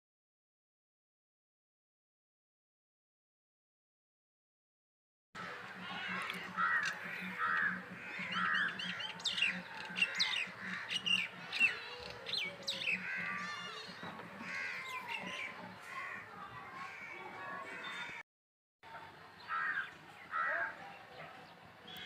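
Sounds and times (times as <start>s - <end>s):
crow-like caws: 5.4s - 9.2s, 12.7s - 18.2s, 19.5s - 20.7s
birds chirping: 5.4s - 18.2s, 19.4s - 22.0s.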